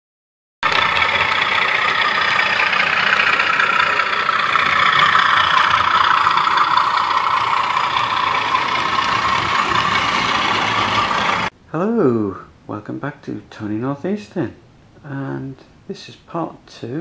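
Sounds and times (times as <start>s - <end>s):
model trains running on track: 0.6s - 11.5s.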